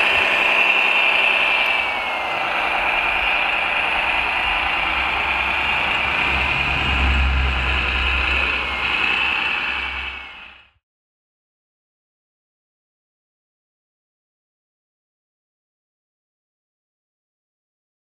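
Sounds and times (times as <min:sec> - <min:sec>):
high whine of toy truck drive: 0:00.0 - 0:10.8
low engine-like rumble: 0:01.5 - 0:10.7.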